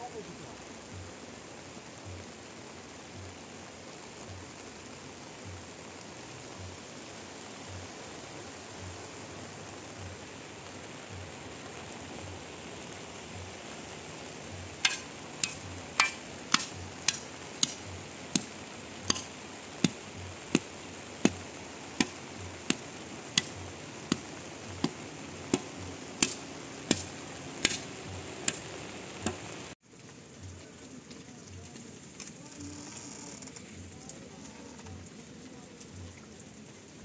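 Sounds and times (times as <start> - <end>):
rain hissing: 0.0 - 37.0
wooden pole knocking: 14.8 - 17.8, 19.1 - 20.0, 20.6 - 21.4, 23.4 - 28.7.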